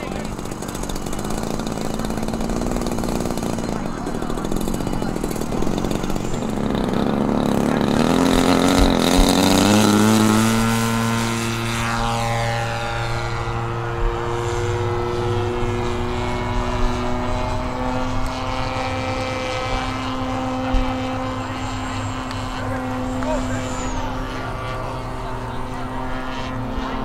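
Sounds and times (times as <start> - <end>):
model airplane motor droning: 0.0 - 27.0.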